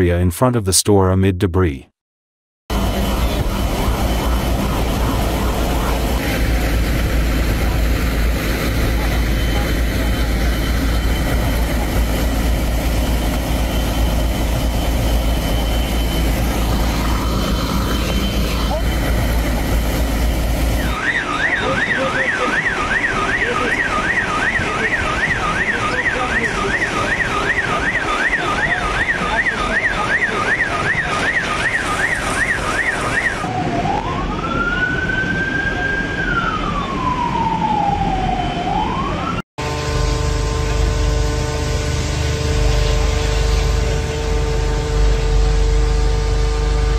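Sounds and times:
low rumble: 2.7 - 21.0
steady hum: 2.7 - 21.0
emergency siren yelp and wail: 2.7 - 46.9.

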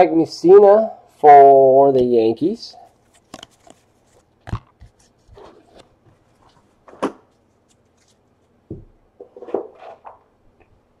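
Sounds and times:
cards rustling and tapping: 3.0 - 8.6.

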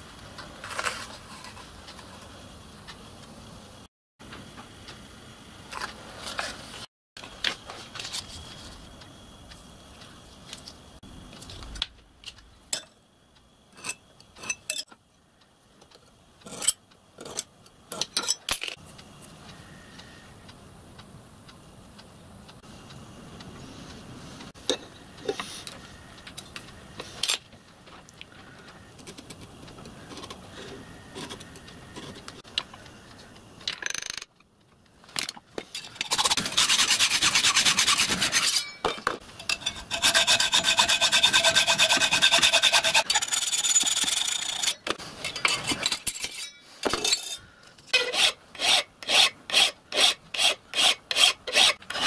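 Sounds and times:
hacksaw cutting metal: 16.4 - 18.4, 36.0 - 52.0
hand file on metal: 36.4 - 38.8, 39.5 - 44.8, 48.0 - 52.0.

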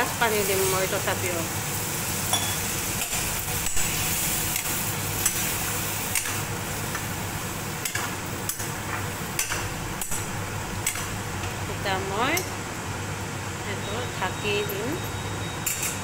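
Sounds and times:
sizzling hiss: 0.0 - 11.2.

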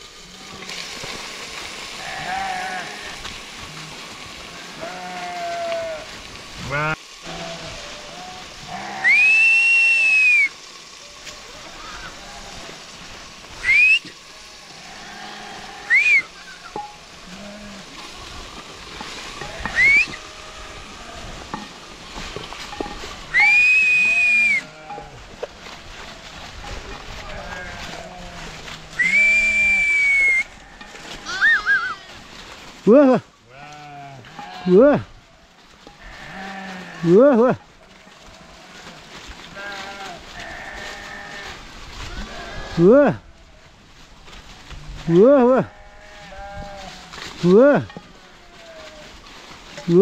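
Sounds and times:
faint steady hiss: 0.0 - 50.0
sheep bleating: 2.0 - 12.8, 13.6 - 18.4, 27.1 - 32.2, 32.9 - 35.0, 36.0 - 43.3, 45.2 - 49.1
high whistle: 9.0 - 10.6, 13.6 - 14.2, 15.9 - 16.3, 19.7 - 20.2, 23.3 - 24.7, 29.0 - 30.5.

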